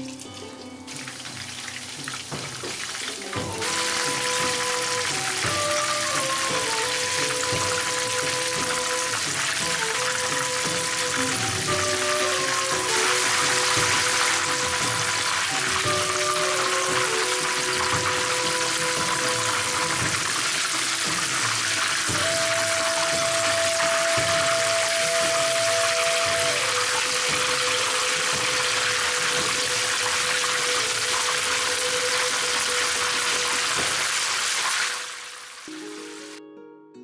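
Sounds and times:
chicken deep-frying in oil: 0.0 - 36.4.

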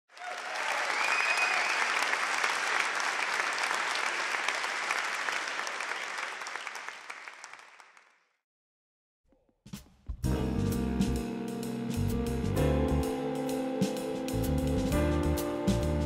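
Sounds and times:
high-pitched cheer: 0.1 - 4.3
audience applauding: 0.1 - 8.4.

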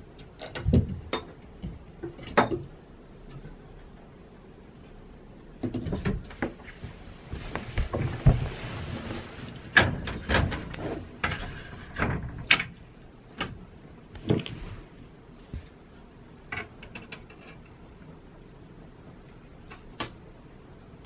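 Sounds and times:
rustling: 6.0 - 12.4.

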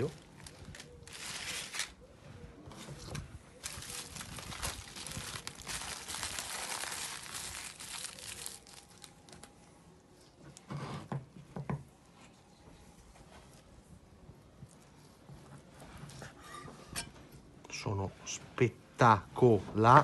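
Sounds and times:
aluminium foil crinkling: 0.0 - 2.0, 3.0 - 9.6.

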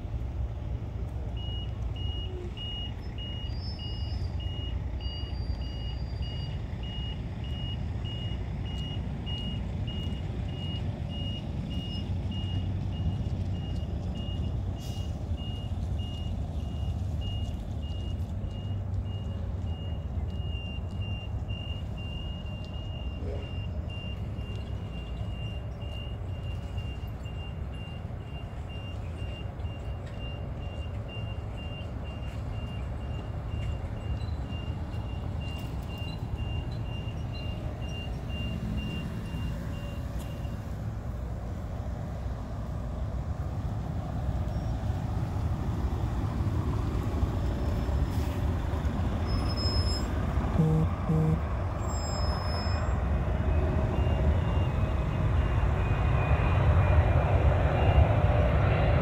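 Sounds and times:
reversing alarm beeping: 1.3 - 40.7, 49.3 - 58.5
steady low rumble: 50.3 - 51.8.

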